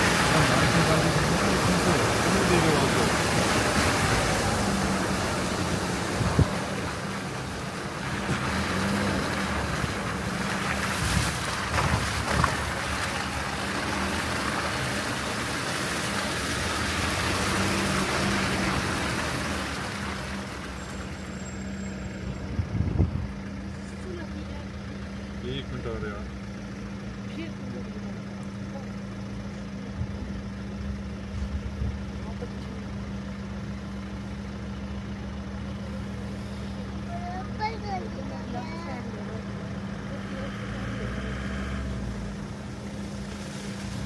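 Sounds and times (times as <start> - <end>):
diesel engine humming: 0.0 - 44.0
road and wind noise: 0.0 - 44.0.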